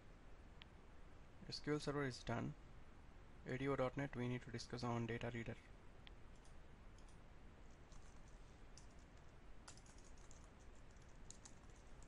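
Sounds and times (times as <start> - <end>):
keyboard typing clicks: 6.4 - 7.2, 7.9 - 12.0.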